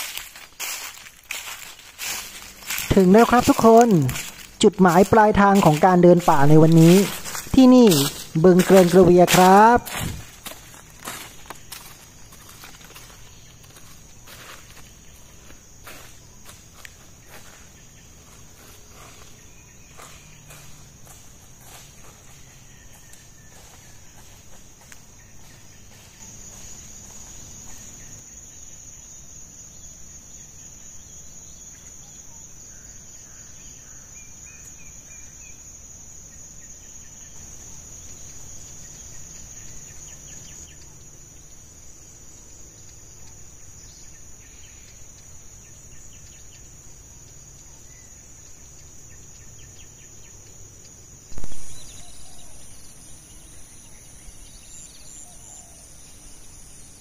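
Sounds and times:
high-pitched insect drone: 0:00.0 - 0:57.0
faint bird chirps: 0:51.3 - 0:56.6.

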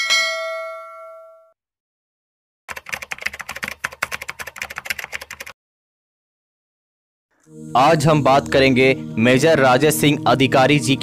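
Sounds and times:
bell-like notification ding: 0:00.0 - 0:01.6.

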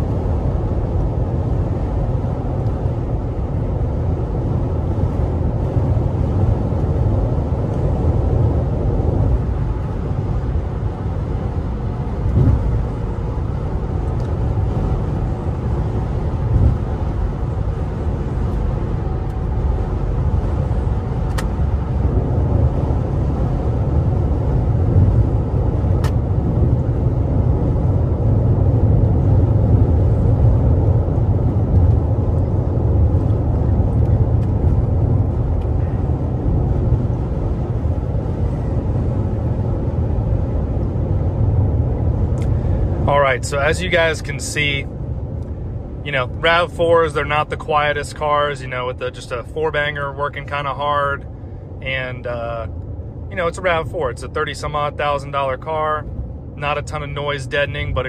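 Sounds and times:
car engine working hard: 0:00.0 - 0:58.0
road and tyre noise: 0:00.0 - 0:58.0.

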